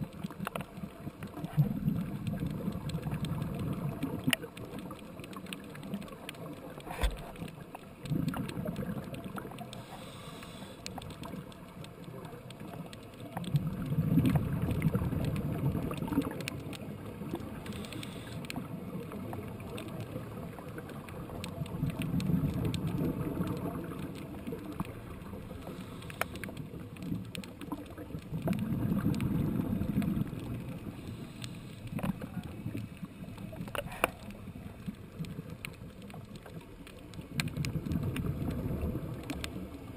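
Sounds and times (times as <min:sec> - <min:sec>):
exhaled bubbles rumbling underwater: 0:00.0 - 0:39.9
underwater hiss: 0:09.5 - 0:11.1, 0:17.2 - 0:18.8, 0:25.1 - 0:26.9, 0:28.7 - 0:34.9.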